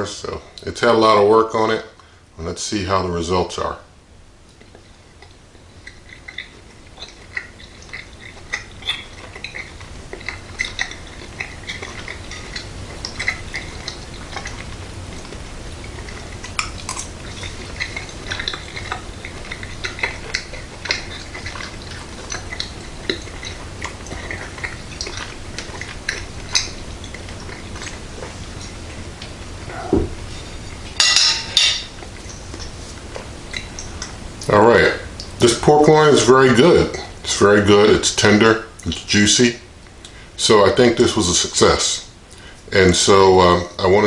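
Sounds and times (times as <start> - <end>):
faint low hum: 0.0 - 44.0
fork clinking on a plate: 31.0 - 31.9.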